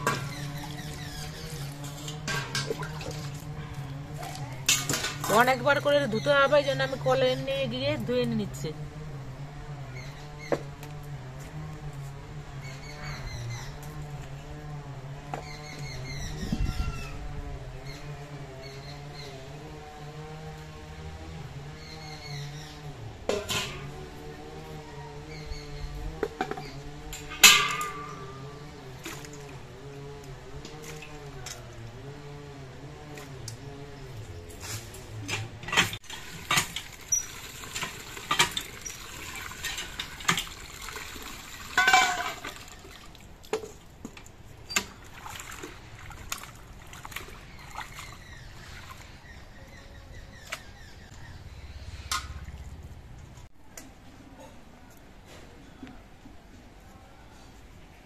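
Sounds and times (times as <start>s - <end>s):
water splashing and pouring: 0.0s - 3.5s, 36.0s - 49.1s
metal bowls clinking: 27.2s - 29.0s, 41.8s - 42.7s.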